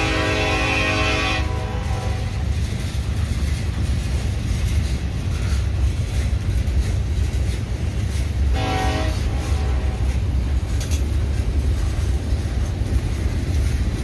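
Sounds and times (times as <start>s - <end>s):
train horn: 0.0s - 2.4s, 8.5s - 10.2s
freight train cars rumbling past: 0.0s - 14.0s.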